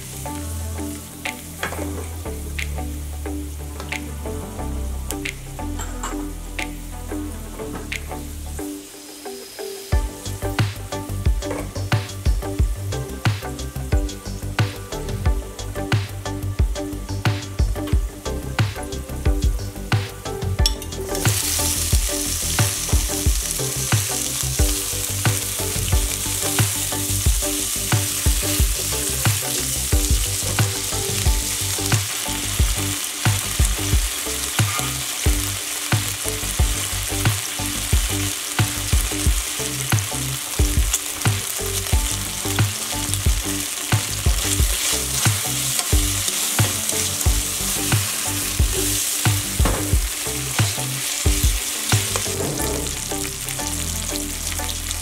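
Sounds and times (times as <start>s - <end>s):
bacon sizzling in oil: 20.7s - 55.0s.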